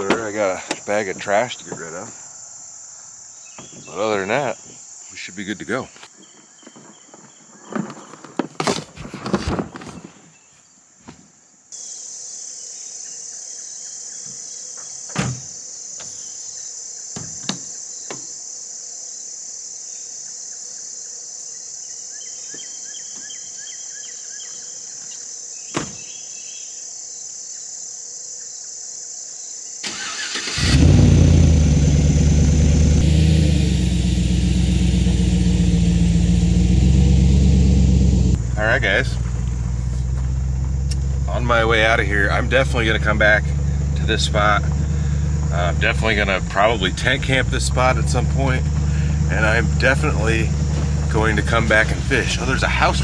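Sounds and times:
crickets chirping: 0.0 - 53.0
truck engine starting and idling: 29.8 - 53.0.

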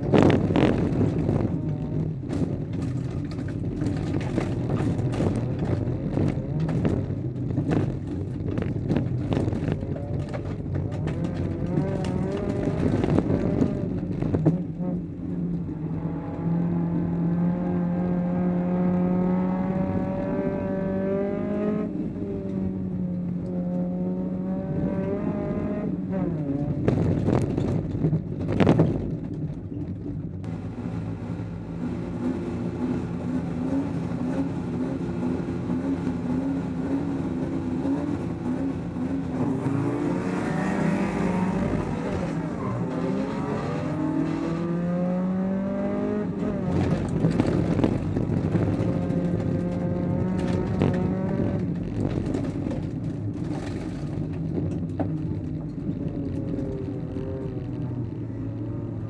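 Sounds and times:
rattles and knocks through car body: 0.0 - 14.8, 26.7 - 30.5, 46.4 - 56.1.

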